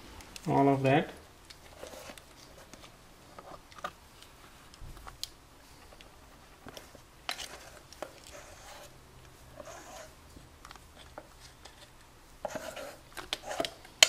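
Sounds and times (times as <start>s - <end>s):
spatula scraping steel bowl: 9.6s - 10.1s.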